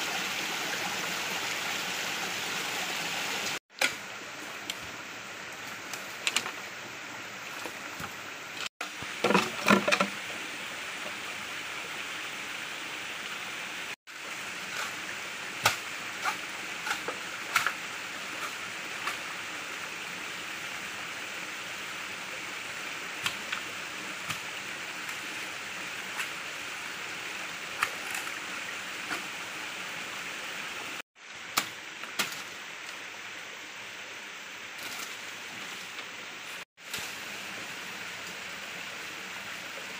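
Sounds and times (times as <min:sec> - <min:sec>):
stream flowing: 0:00.0 - 0:39.9
machete chopping bamboo: 0:15.6 - 0:17.8.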